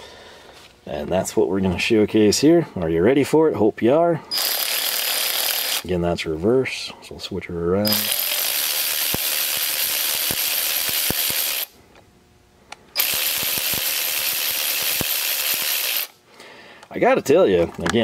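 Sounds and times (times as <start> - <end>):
cordless ratchet motor running: 4.3 - 5.9, 7.8 - 11.7, 13.0 - 16.2
ratchet clicks: 4.3 - 5.9, 7.8 - 11.7, 13.0 - 16.2.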